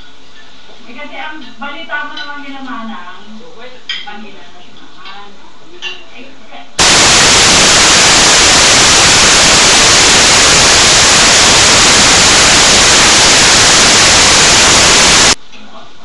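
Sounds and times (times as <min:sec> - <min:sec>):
static hiss: 0:06.8 - 0:15.4.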